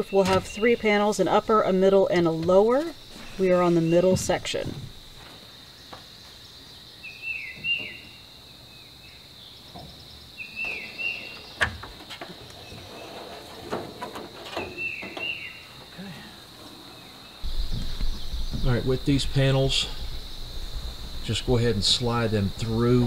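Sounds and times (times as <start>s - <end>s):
songbird chirping: 0.0s - 23.0s
roof panel knocks and rattles: 13.5s - 15.4s
high-pitched insect drone: 17.4s - 23.0s.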